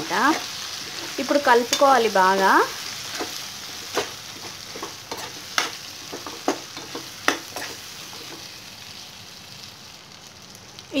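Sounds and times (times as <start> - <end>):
chicken sizzling in a pan: 0.0 - 11.0
spoon clinking and scraping pan: 0.3 - 2.1, 3.1 - 8.5.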